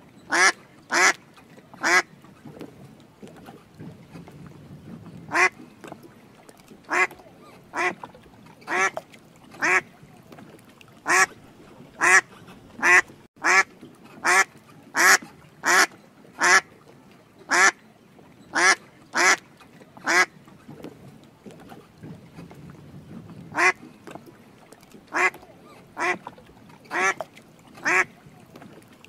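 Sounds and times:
duck quacking: 0:00.3 - 0:01.2, 0:01.8 - 0:02.0, 0:05.3 - 0:05.6, 0:06.9 - 0:07.1, 0:07.7 - 0:08.0, 0:08.7 - 0:09.0, 0:09.6 - 0:09.8, 0:11.1 - 0:11.3, 0:12.0 - 0:16.6, 0:17.5 - 0:17.8, 0:18.6 - 0:19.4, 0:20.0 - 0:20.3, 0:23.6 - 0:23.8, 0:25.1 - 0:25.4, 0:26.0 - 0:26.2, 0:26.9 - 0:27.2, 0:27.8 - 0:28.1.

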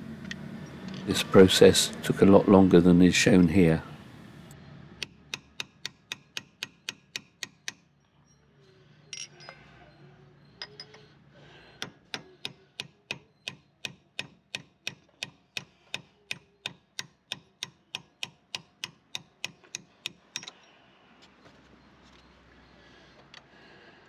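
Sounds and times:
hammer striking chisel: 0:05.0 - 0:07.9, 0:11.8 - 0:20.6.

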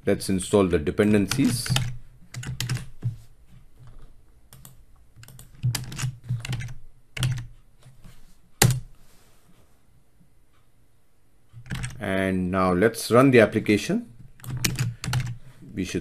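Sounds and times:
keyboard keys clicking: 0:01.2 - 0:02.9, 0:03.8 - 0:07.5, 0:11.6 - 0:12.0.

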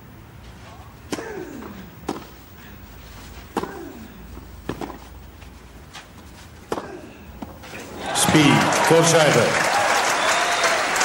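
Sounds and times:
tennis racket hits: 0:01.1 - 0:02.4, 0:03.5 - 0:05.1, 0:05.9 - 0:08.4.

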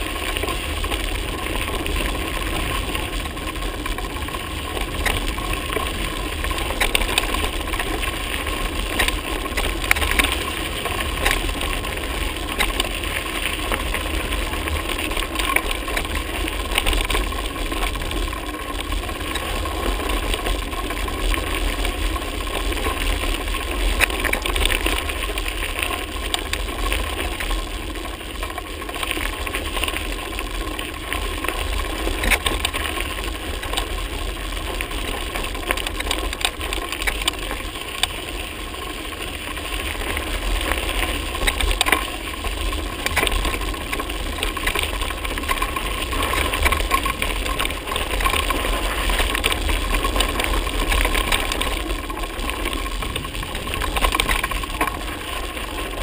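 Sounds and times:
bicycle tyre noise on dirt: 0:00.0 - 0:56.0
bike rattling and knocking: 0:00.0 - 0:56.0
wind rumble on microphone: 0:39.3 - 0:56.0.

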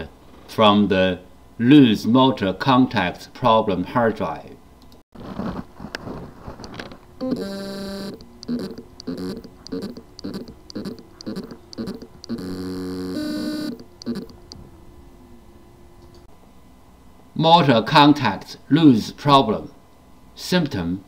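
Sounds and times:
hard drive buzzing: 0:06.7 - 0:14.7
hard drive motor spinning: 0:07.2 - 0:14.6
hard drive short pulses: 0:07.2 - 0:14.7.

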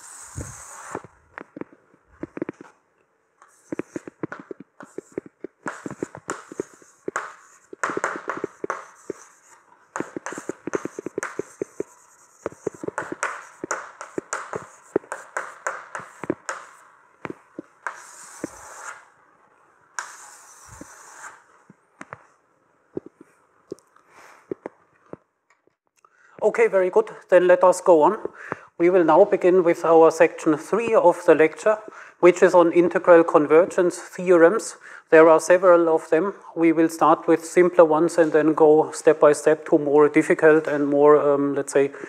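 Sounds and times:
chalk scraping strokes: 0:00.0 - 0:01.1, 0:03.5 - 0:04.2, 0:04.8 - 0:16.9, 0:17.8 - 0:19.2, 0:20.0 - 0:21.5
chalk tapping and scratching: 0:00.0 - 0:01.1, 0:03.4 - 0:16.9, 0:17.6 - 0:19.1, 0:20.0 - 0:21.5.

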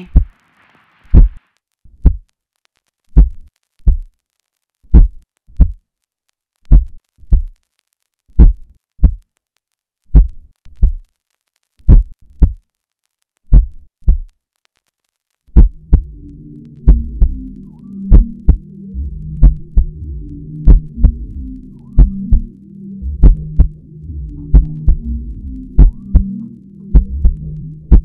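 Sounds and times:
heavy heartbeat thumps: 0:00.0 - 0:00.3, 0:01.1 - 0:02.2, 0:03.2 - 0:04.1, 0:04.9 - 0:05.8, 0:06.7 - 0:07.5, 0:08.4 - 0:09.2, 0:10.1 - 0:11.0, 0:11.9 - 0:12.6, 0:13.5 - 0:14.3, 0:15.6 - 0:16.3, 0:16.9 - 0:17.4, 0:18.1 - 0:28.0.

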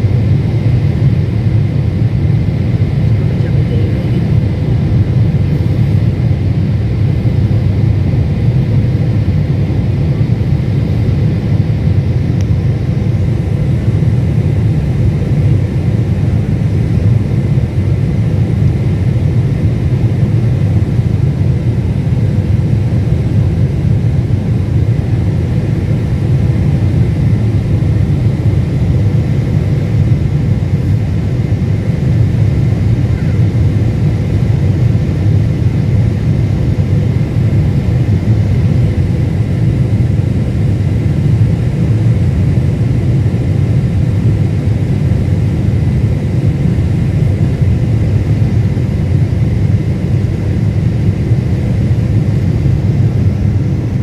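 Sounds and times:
airplane cabin rumble: 0:00.0 - 0:54.0
faint steady whine: 0:00.0 - 0:54.0.

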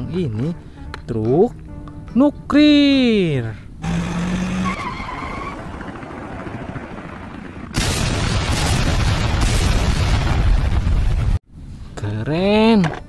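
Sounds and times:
loud cartoon explosion: 0:07.7 - 0:11.4.

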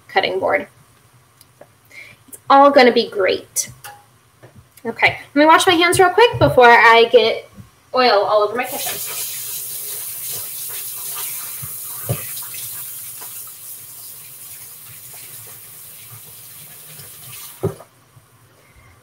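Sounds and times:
tap water running: 0:08.6 - 0:17.9
hands washing under water: 0:08.7 - 0:17.9.

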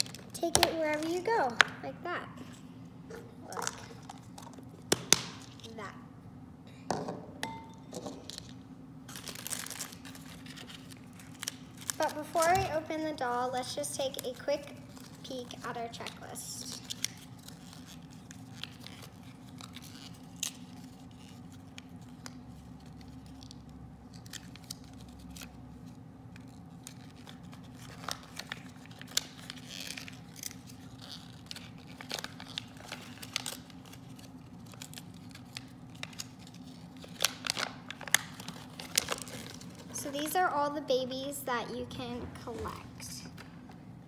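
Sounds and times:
paper leaflet crinkling: 0:08.2 - 0:40.4.

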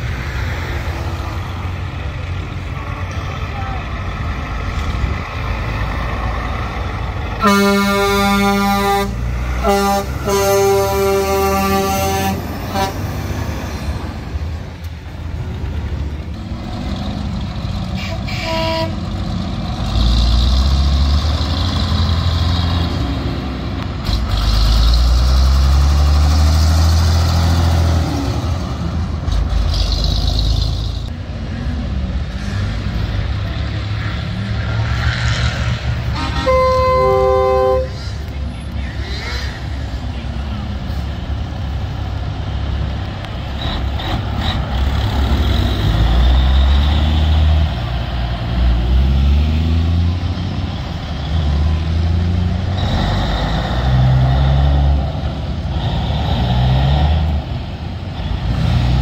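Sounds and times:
diesel trucks rumbling past: 0:00.0 - 0:59.0
truck air horn blasts: 0:07.4 - 0:13.1, 0:18.0 - 0:19.0, 0:36.1 - 0:38.2.

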